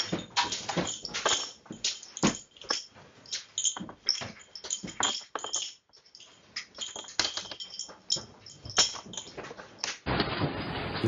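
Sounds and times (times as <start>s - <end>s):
dishes clinking and rattling: 0.0s - 10.0s.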